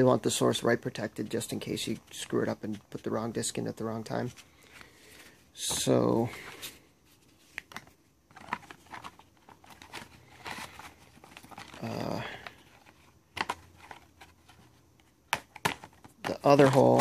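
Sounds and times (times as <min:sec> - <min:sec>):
cardboard scraping and rustling: 0:08.3 - 0:14.8.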